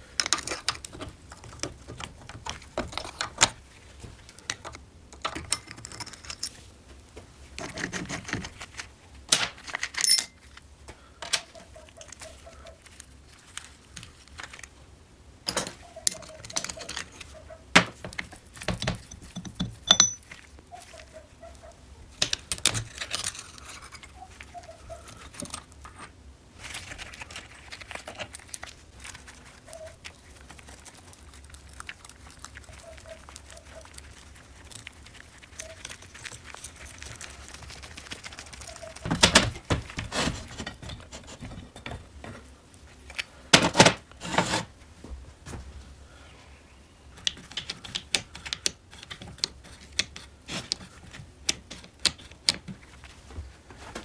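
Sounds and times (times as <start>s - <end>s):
metal engine parts clinking: 9.9s - 10.4s, 18.8s - 20.3s.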